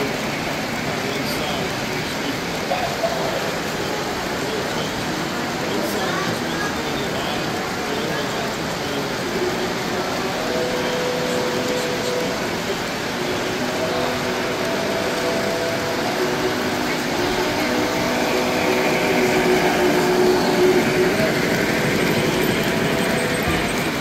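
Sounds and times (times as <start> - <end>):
chatter in a hall: 0.0 - 24.0
model train rumbling on track: 0.0 - 24.0
held tones: 9.4 - 24.0.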